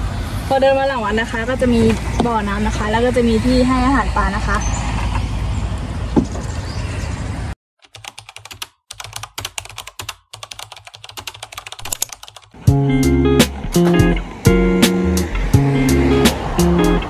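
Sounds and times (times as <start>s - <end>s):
outdoor background noise: 0.0s - 7.6s
rapid keyboard typing: 7.8s - 12.6s
music with plucked notes: 12.7s - 17.0s.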